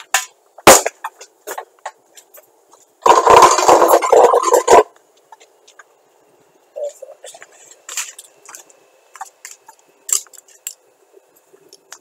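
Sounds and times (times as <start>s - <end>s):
burning television popping and crackling: 0.0s - 2.4s.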